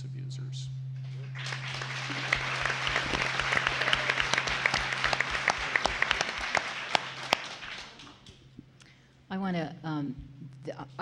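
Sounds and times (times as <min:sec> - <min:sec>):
steady low hum: 0:00.0 - 0:11.0
audience clapping: 0:01.0 - 0:08.4.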